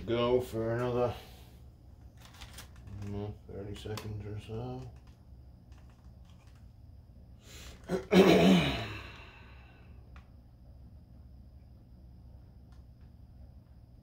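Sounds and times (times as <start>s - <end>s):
faint low hum: 0.0s - 14.0s
person sighing: 7.5s - 9.9s.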